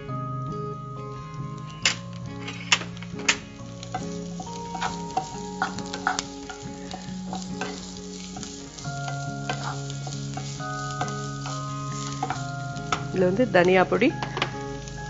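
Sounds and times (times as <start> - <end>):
onions sizzling in oil: 0.0 - 15.0
wooden spatula scraping pan: 4.0 - 13.0.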